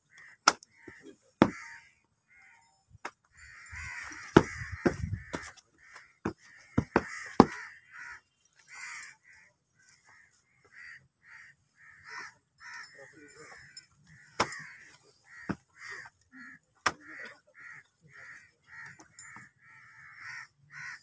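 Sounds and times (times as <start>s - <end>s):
crows cawing: 0.0s - 21.0s
sharp knocks: 4.3s - 5.6s, 6.2s - 7.6s.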